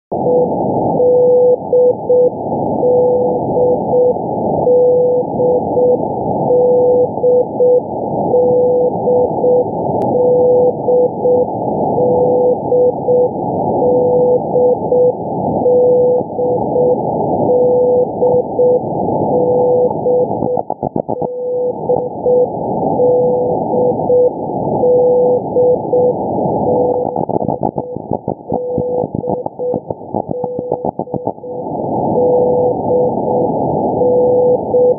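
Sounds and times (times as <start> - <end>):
radio hiss: 26.4 - 33.5
morse code beat tone: 26.7 - 31.6.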